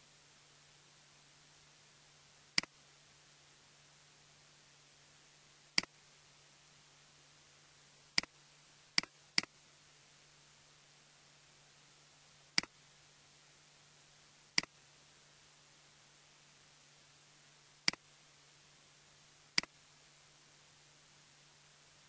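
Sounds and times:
faint steady hiss: 0.0s - 22.0s
computer mouse clicking: 12.6s - 12.8s.

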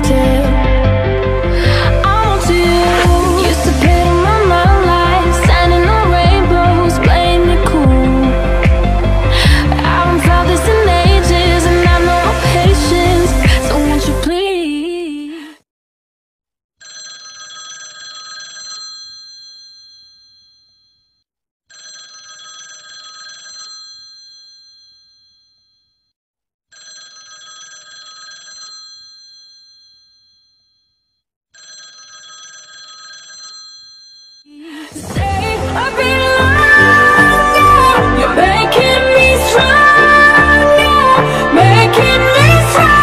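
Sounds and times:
smartphone ringtone: 16.8s - 20.8s, 21.7s - 25.8s, 26.7s - 30.8s, 31.6s - 34.5s.

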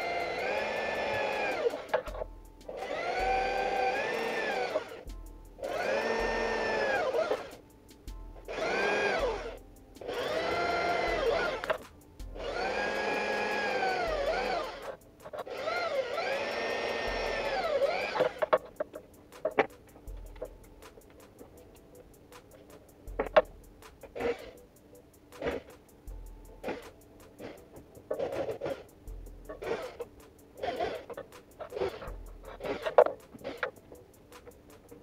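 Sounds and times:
electric drill boring into wood: 0.0s - 5.0s, 5.7s - 7.6s, 8.5s - 11.8s, 12.4s - 18.7s, 24.2s - 24.6s, 29.6s - 33.8s.

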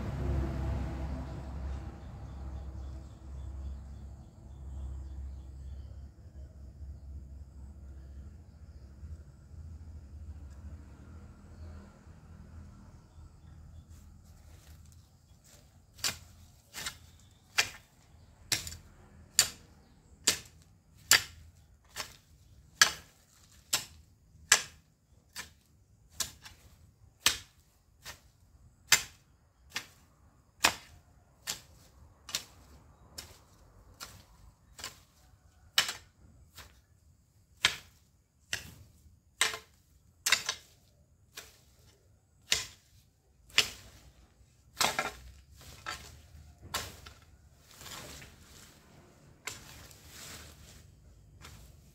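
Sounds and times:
hoe chopping into ground: 14.4s - 36.9s, 37.5s - 51.9s.

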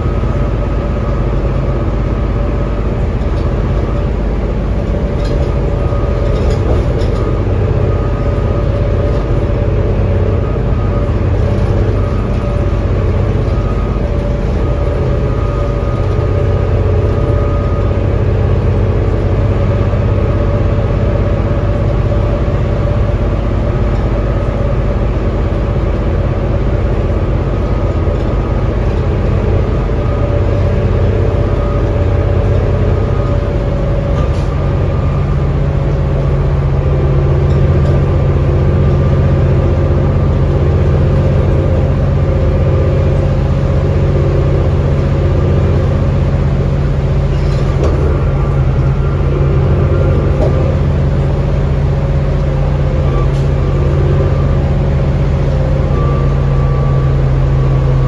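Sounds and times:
bus diesel engine droning: 0.0s - 58.0s.

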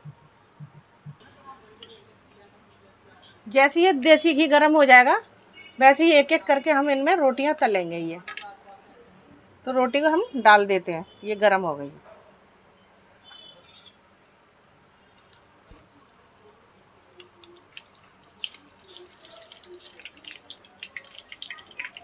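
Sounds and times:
bread frying with crackles and pops: 15.1s - 22.0s.

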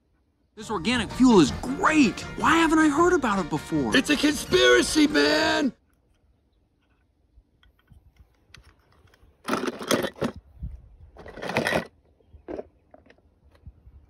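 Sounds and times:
toy cars scraping and crunching: 8.6s - 10.4s, 11.2s - 13.3s.

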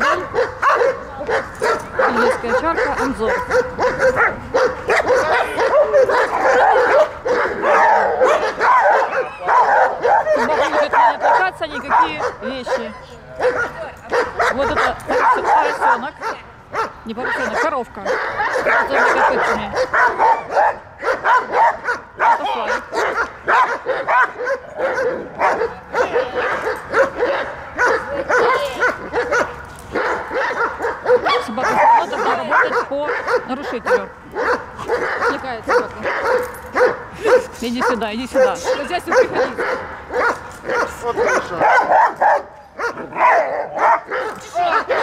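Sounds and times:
dog barking rapidly: 0.0s - 45.0s
dog yelping and whining: 1.5s - 16.0s.

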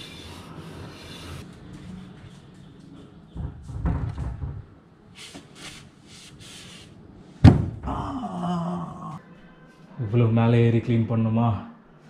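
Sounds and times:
man groaning in pain: 7.8s - 9.2s.

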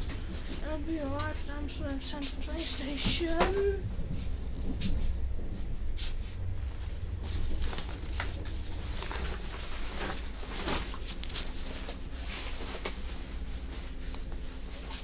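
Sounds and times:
train interior rumble: 0.0s - 15.0s.

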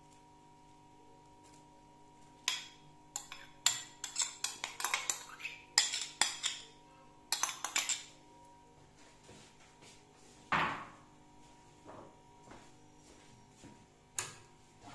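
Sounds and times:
metal spoon tapping a bowl: 2.4s - 6.7s, 7.3s - 8.1s.

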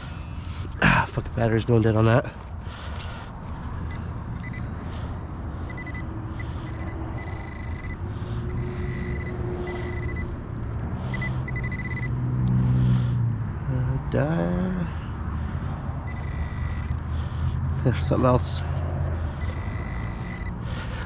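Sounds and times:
vehicle rumble: 0.0s - 21.0s
metal detector pinpointer tone: 4.4s - 4.7s, 5.7s - 10.3s, 11.1s - 12.2s, 16.1s - 17.0s, 19.4s - 20.6s.

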